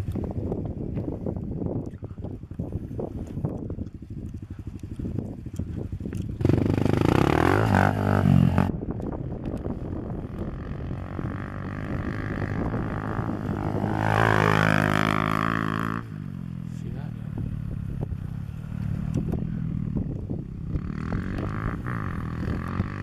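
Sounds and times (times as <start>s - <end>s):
pit bike engine revving: 6.4s - 8.9s, 9.9s - 23.0s.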